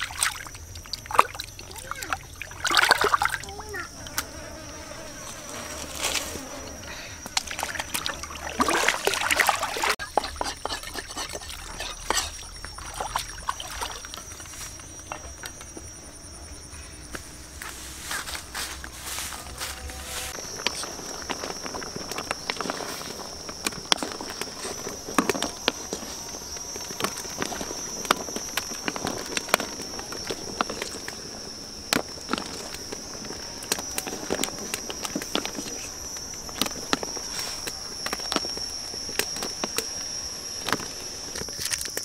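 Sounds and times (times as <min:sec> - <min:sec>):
high-pitched insect drone: 0:00.0 - 0:42.0.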